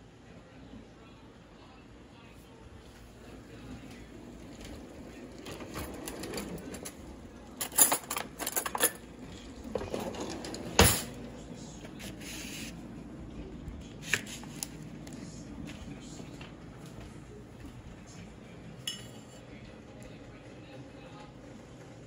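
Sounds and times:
utensils clinking in drawer: 4.4 - 11.3.

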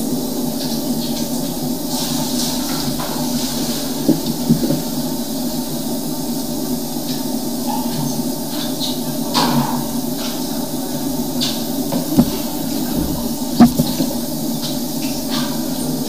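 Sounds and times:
vacuum motor running: 11.8 - 14.4
sharp knocks: 12.0 - 14.2.

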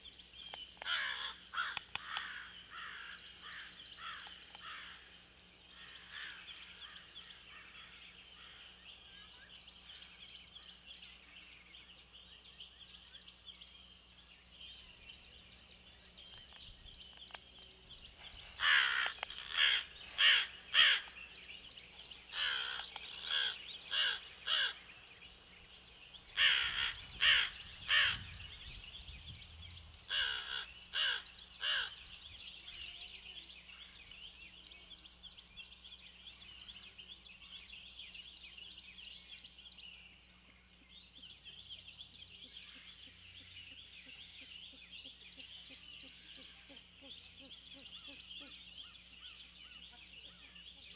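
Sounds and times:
crows cawing: 0.8 - 5.1, 5.8 - 8.7, 18.6 - 21.2, 22.3 - 24.8, 26.4 - 28.2, 30.1 - 32.0.

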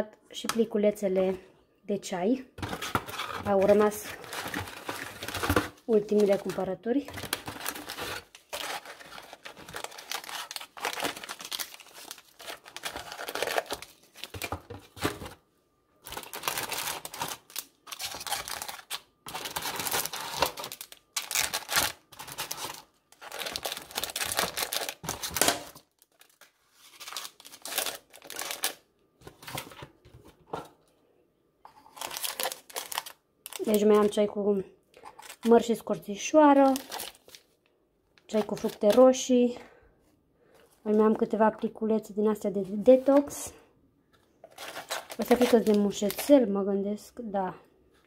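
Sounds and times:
paper sachets rustling: 2.6 - 15.4, 16.0 - 29.8, 31.8 - 34.1, 35.0 - 35.7, 36.5 - 37.6, 38.3 - 39.1, 44.4 - 46.4.

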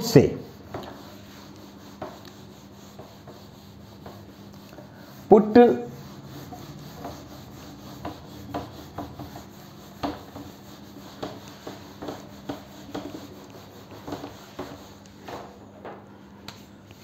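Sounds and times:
duster scrubbing whiteboard: 0.0 - 17.0.

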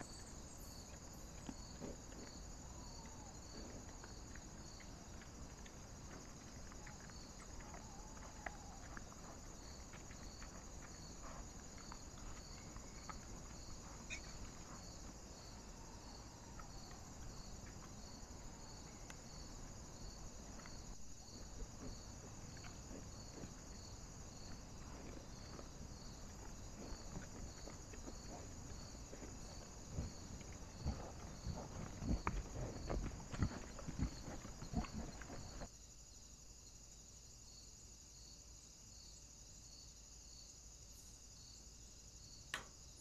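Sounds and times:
wild boar rustling and rooting: 0.0 - 35.7
night insects chirping: 0.0 - 43.0
hoof thumps and digging: 1.0 - 15.8, 16.5 - 35.7.

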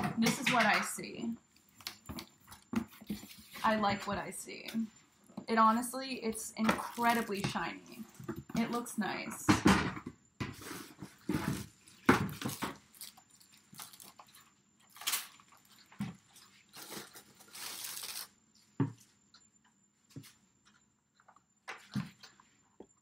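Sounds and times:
plastic bag crinkling: 6.8 - 8.2, 11.8 - 18.3.

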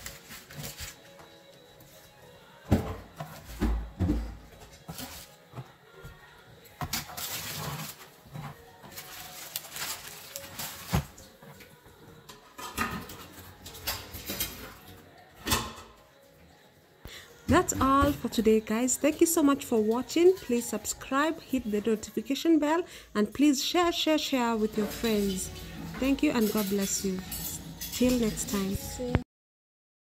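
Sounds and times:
metal spatula scraping parchment paper: 7.0 - 11.1
cookies set on wire rack: 24.6 - 28.8.

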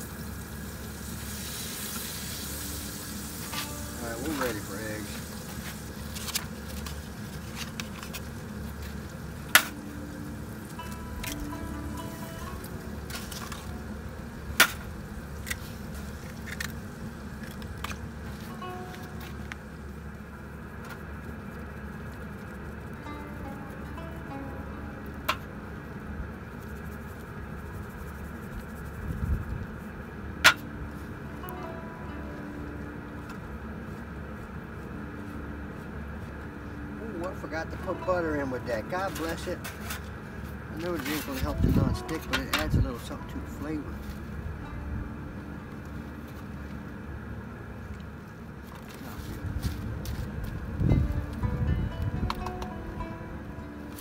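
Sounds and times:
food sizzling in a pan: 0.0 - 6.2
steady low background noise: 0.0 - 54.0.

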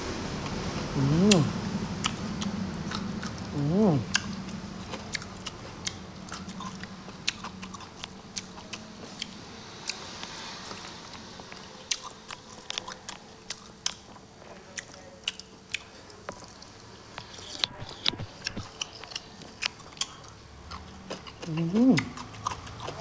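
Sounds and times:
wet chewing and lip-smacking: 0.4 - 10.0, 10.7 - 23.0
sharp mouth clicks: 1.0 - 8.5, 21.1 - 23.0.

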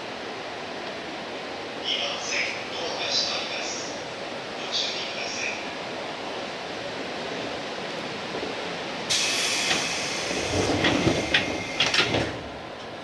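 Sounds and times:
loud hiss: 9.1 - 12.4.

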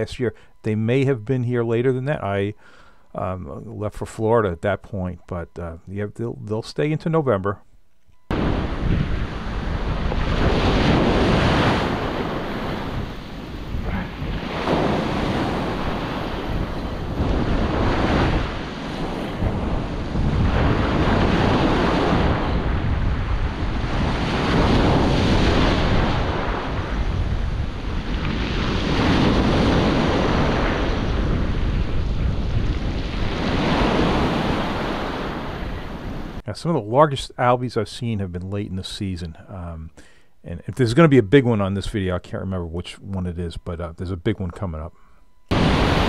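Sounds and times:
wind buffeting microphone: 8.3 - 36.4
waves washing over stony beach: 8.4 - 36.4, 45.5 - 46.0.

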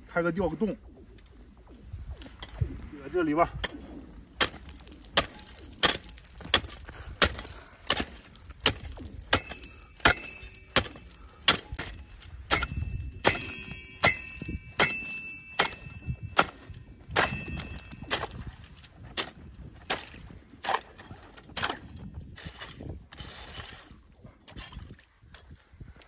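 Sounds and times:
ice chips cracking: 4.4 - 12.6
spade chopping into ice: 4.4 - 18.5, 19.1 - 22.8
high ringing tone: 12.8 - 18.1.

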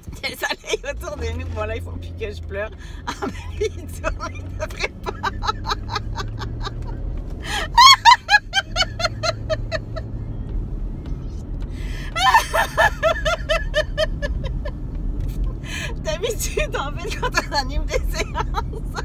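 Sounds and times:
car humming: 0.0 - 19.0
woman laughing out loud: 3.1 - 10.2, 12.0 - 14.8.

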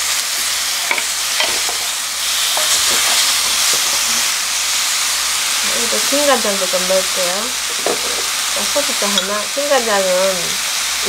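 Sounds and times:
chicken sizzling in a pan: 0.0 - 11.0
wooden spoons tapping and scraping: 0.4 - 4.2, 7.6 - 8.4, 9.1 - 9.4.

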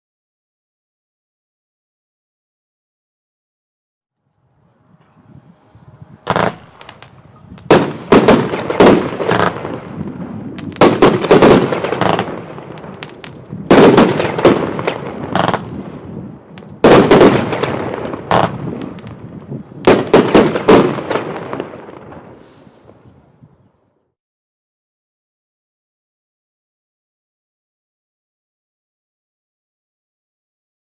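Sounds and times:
firework volleys of sharp reports: 5.3 - 23.2.

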